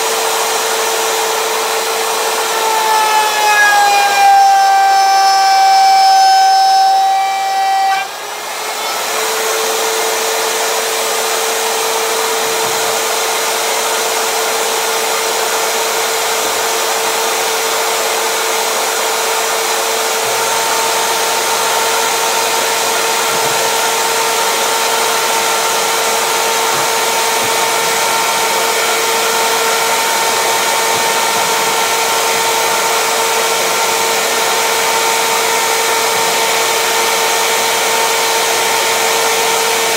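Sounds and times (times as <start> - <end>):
wood router whine: 0.0 - 39.9.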